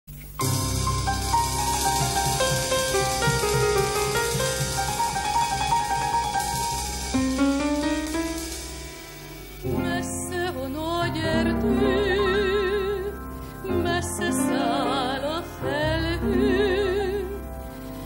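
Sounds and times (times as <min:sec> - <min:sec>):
operetta singing with accompaniment: 0:09.6 - 0:18.0.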